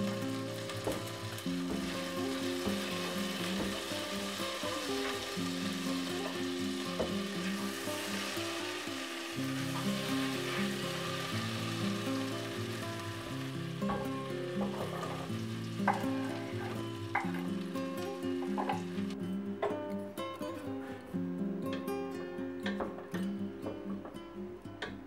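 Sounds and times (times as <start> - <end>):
butter sizzling in a pot: 0.0 - 19.2.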